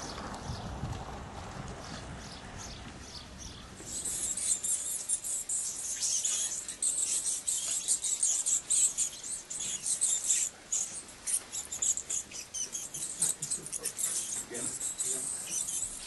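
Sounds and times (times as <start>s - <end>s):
bats squeaking: 3.8s - 16.0s.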